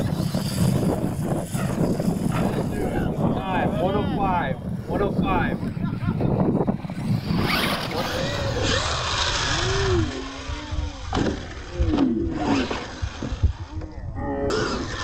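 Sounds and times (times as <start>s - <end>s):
electric motor whining: 6.6s - 15.0s.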